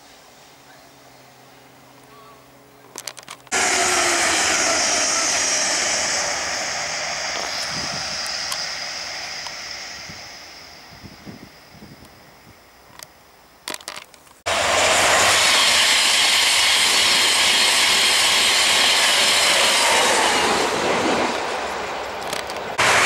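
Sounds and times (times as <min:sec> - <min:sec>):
faint outdoor ambience: 0:00.0 - 0:16.6
diesel train passing at speed: 0:03.5 - 0:13.3, 0:14.5 - 0:23.0.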